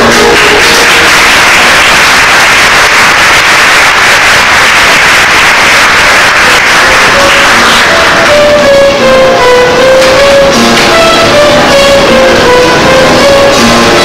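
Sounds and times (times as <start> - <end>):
audience applause: 0.0 - 8.7.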